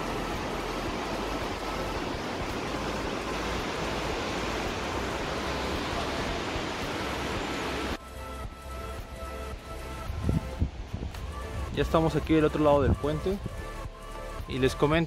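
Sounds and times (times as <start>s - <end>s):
faint background music: 0.0s - 15.0s
steady rushing outdoor noise: 0.0s - 15.0s.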